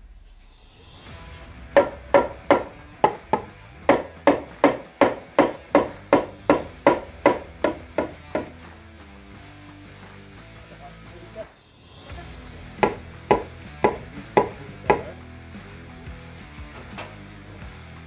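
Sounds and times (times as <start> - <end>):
hammer striking wood: 1.8 - 8.6, 12.8 - 15.2.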